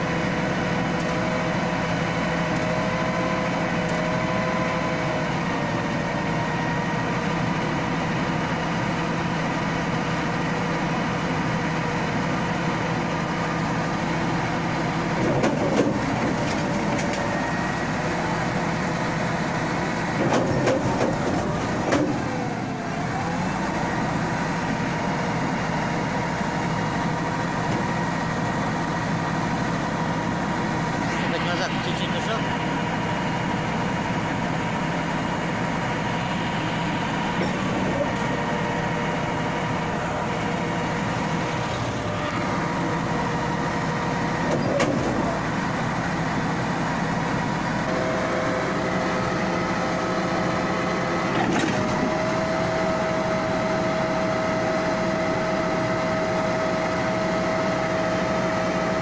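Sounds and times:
bulldozer diesel engine running: 0:00.0 - 0:59.0.

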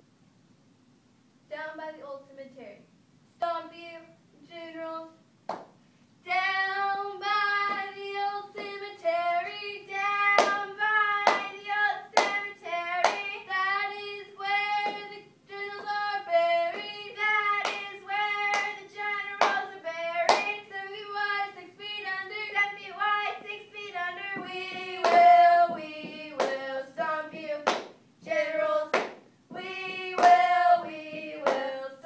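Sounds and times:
sharp hand claps: 0:05.5 - 0:05.8, 0:10.4 - 0:13.4, 0:14.8 - 0:15.2, 0:17.6 - 0:18.8, 0:19.4 - 0:19.6, 0:20.3 - 0:20.6, 0:25.0 - 0:26.6, 0:27.3 - 0:28.0, 0:28.9 - 0:29.2, 0:29.9 - 0:31.8.

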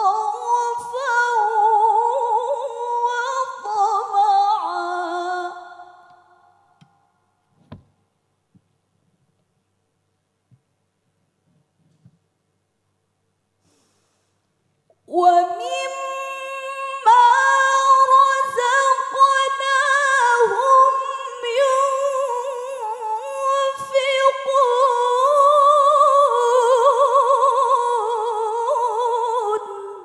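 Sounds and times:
woman reciting melodically: 0:00.0 - 0:06.1, 0:15.1 - 0:30.0.

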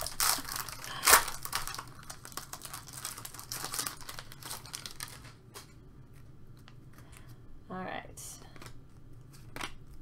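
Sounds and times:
foil wrapper crinkling: 0:00.0 - 0:05.7.

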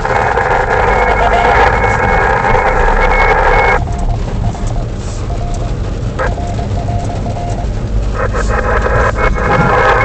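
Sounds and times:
radio static hiss: 0:00.0 - 0:03.8, 0:08.0 - 0:10.0
low car rumble: 0:00.0 - 0:10.0.

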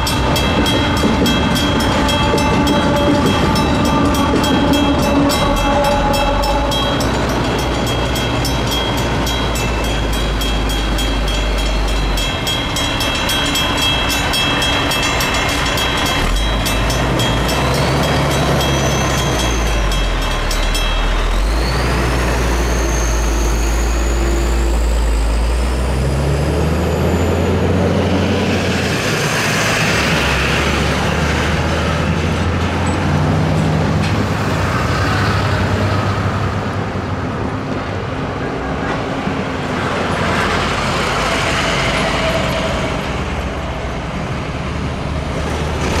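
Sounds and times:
truck engines accelerating: 0:00.0 - 0:46.0
thin high squeal: 0:17.6 - 0:24.9.

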